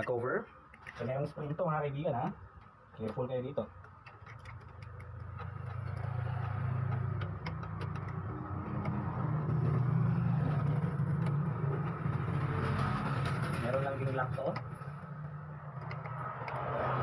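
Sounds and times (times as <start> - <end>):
plastic parts clicking: 3.8 - 9.9, 14.3 - 16.7.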